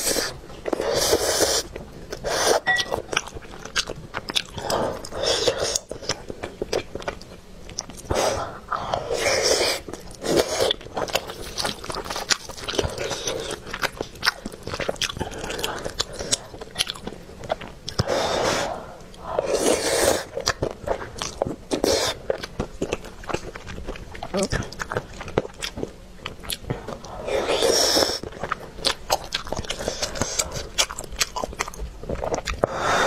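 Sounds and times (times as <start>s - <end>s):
wet chewing and mouth clicks: 0.0s - 18.3s, 19.0s - 33.0s.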